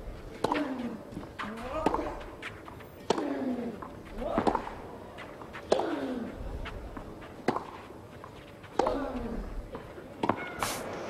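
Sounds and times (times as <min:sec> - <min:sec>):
racket striking tennis ball: 0:00.4 - 0:02.4, 0:03.0 - 0:04.8, 0:05.4 - 0:06.1, 0:07.0 - 0:07.8.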